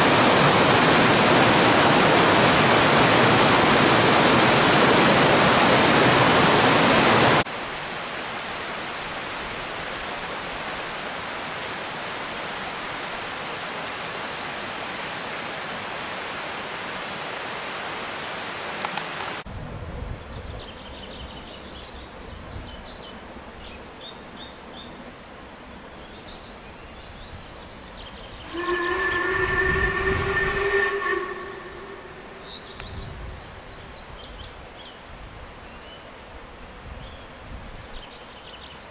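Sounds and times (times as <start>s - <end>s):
stream rushing over rocks: 0.0s - 19.5s
birds chirping: 8.8s - 10.6s, 30.6s - 36.5s
steam locomotive whistle: 28.5s - 32.3s.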